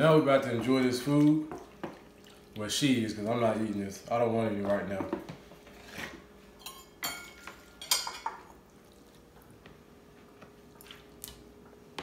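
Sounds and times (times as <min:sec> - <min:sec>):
utensils clinking against a plate: 0:05.8 - 0:08.4.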